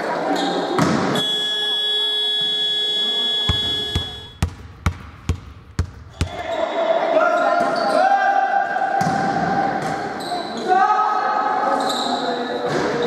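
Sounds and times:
scoreboard buzzer: 1.2s - 4.4s
basketball bouncing on hard floor: 3.5s - 6.4s.

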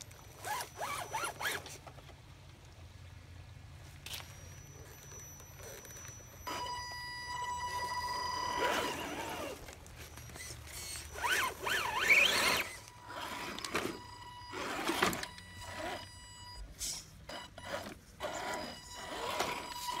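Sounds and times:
electric motors whining: 0.1s - 1.8s, 4.1s - 20.0s
toy trucks scraping on stone: 0.3s - 2.0s, 7.4s - 16.2s, 16.8s - 20.0s.

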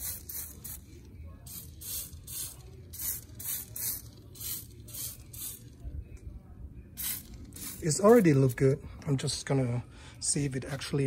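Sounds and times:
spray bottle hisses: 1.5s - 5.6s, 7.0s - 7.8s.

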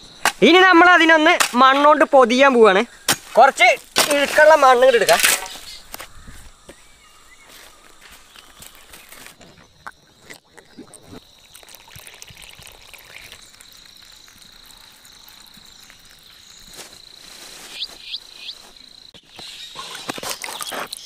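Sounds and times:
high insect drone: 0.0s - 21.0s
water trickling and splashing: 8.6s - 17.7s.

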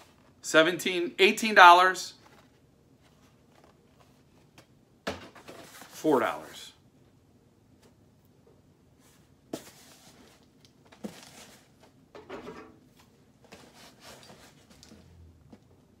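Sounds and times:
cardboard box rustling: 2.2s - 4.6s, 9.6s - 11.8s.

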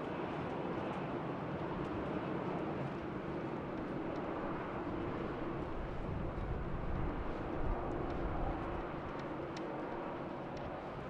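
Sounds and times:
wind buffeting microphone: 2.9s - 11.0s.

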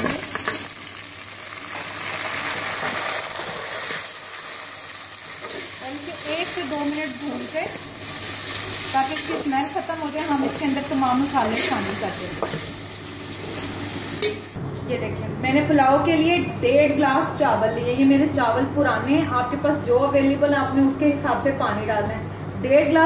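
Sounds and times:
chicken sizzling in hot oil: 0.0s - 14.6s
metal spatula scraping pot: 8.1s - 12.7s.

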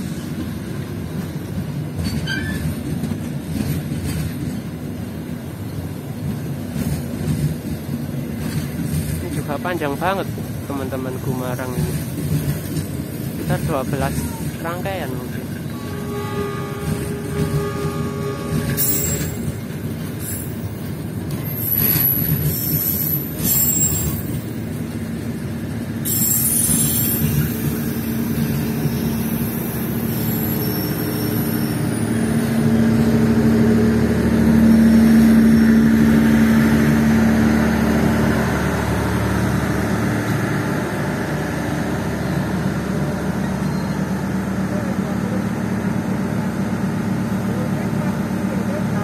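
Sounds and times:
train wheels rumbling on rails: 0.0s - 49.0s
high wheel squeals: 2.0s - 2.8s, 15.6s - 20.7s, 21.3s - 24.6s, 26.0s - 32.8s.

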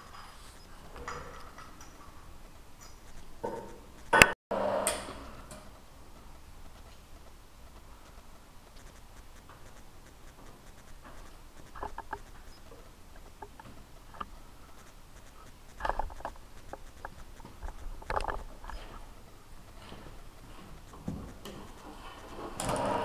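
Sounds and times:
small metallic clicks and taps: 5.5s - 19.0s.

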